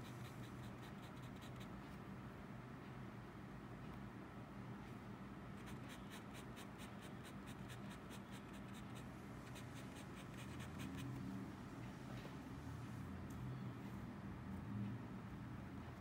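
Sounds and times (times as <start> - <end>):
fountain pen scratching on paper: 5.6 - 11.1.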